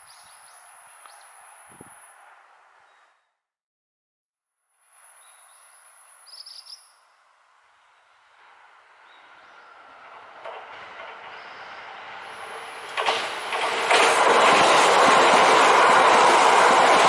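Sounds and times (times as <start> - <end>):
electric train passing: 0.1 - 2.8, 7.1 - 17.0
sharp clacks: 12.9 - 14.7.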